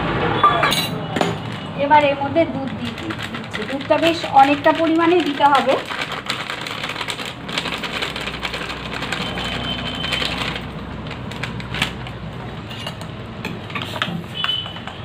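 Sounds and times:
plastic packet rustling: 0:01.4 - 0:12.7.

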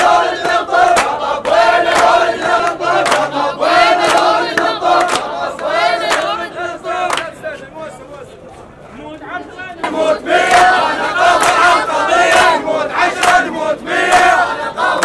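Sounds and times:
crowd chanting: 0:00.0 - 0:07.7, 0:09.5 - 0:15.0
hand claps in time: 0:00.4 - 0:03.3, 0:04.0 - 0:05.3, 0:11.4 - 0:11.7.

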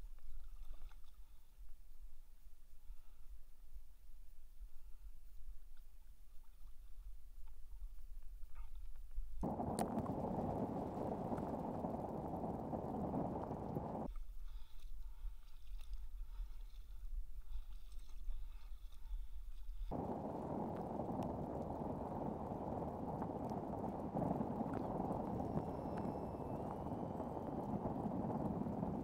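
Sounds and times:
deep dull rumble: 0:09.4 - 0:14.1, 0:19.9 - 0:29.0
kayak rushing through water: 0:09.4 - 0:29.0.

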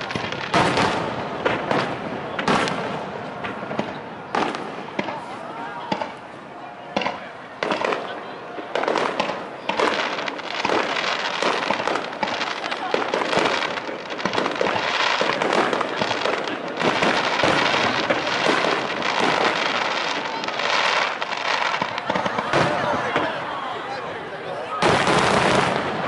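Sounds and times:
fireworks bursting and crackling: 0:00.0 - 0:26.0.

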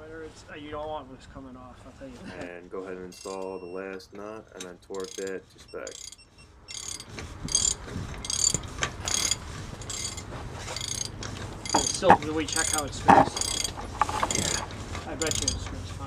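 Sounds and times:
ratcheting wrench clicking: 0:03.2 - 0:03.6, 0:04.9 - 0:15.8.

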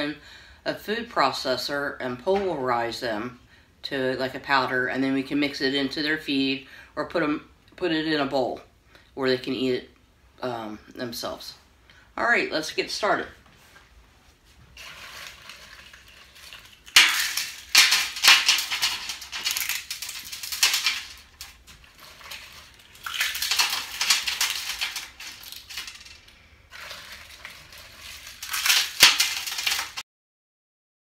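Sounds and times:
eggshells crunching on metal sheet: 0:14.7 - 0:30.0.

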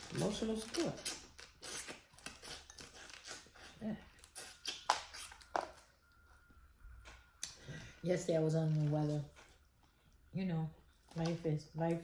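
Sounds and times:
chewing and lip-smacking: 0:00.9 - 0:06.2.

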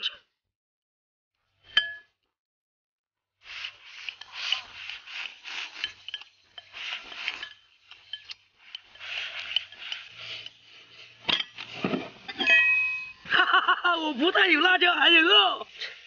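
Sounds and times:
chopsticks scraping clay pot: 0:03.4 - 0:13.3.

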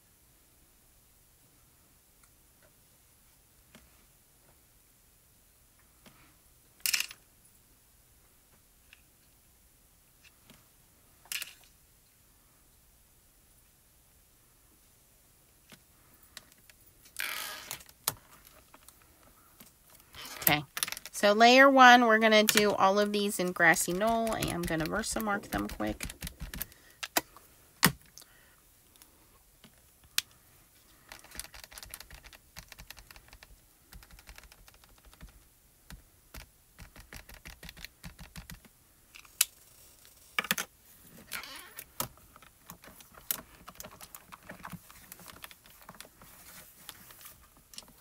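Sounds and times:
small taps and clicks of stamping: 0:24.0 - 0:27.2, 0:31.1 - 0:38.7.

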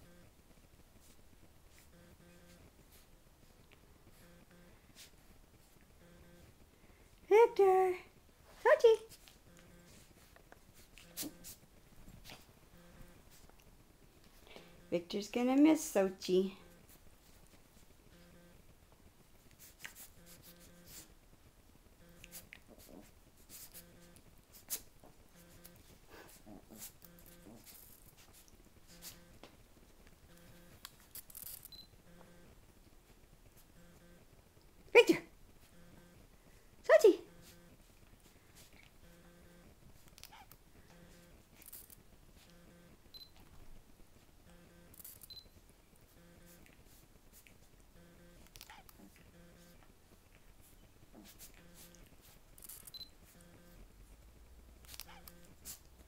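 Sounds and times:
faint low pulsing tone: 0:00.0 - 0:00.4, 0:01.8 - 0:02.7, 0:06.0 - 0:06.9, 0:31.7 - 0:32.6, 0:33.7 - 0:34.3, 0:39.0 - 0:39.8, 0:42.4 - 0:43.4, 0:47.9 - 0:49.8
puppies rustling on bedspread: 0:00.9 - 0:05.9, 0:08.3 - 0:14.4, 0:16.8 - 0:18.0, 0:19.2 - 0:21.2, 0:22.2 - 0:31.8, 0:37.4 - 0:39.1, 0:46.0 - 0:47.8, 0:48.7 - 0:53.4
short scratchy sounds: 0:10.8 - 0:11.6, 0:26.6 - 0:29.4.

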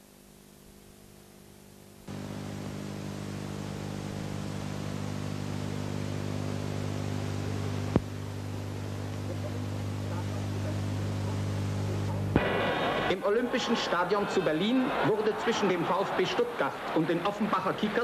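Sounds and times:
steady low hum: 0:00.0 - 0:14.2
film soundtrack hiss: 0:00.0 - 0:18.0.

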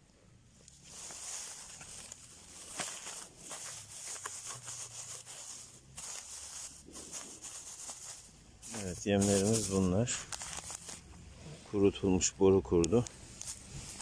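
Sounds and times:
plastic bags crinkling: 0:00.7 - 0:11.2, 0:13.4 - 0:14.0.

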